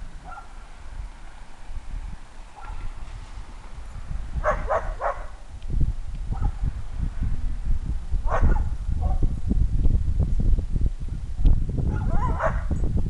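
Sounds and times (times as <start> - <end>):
low rumble on microphone: 0.0 - 13.0
dog giving high-pitched barks: 4.4 - 5.3, 11.9 - 12.7.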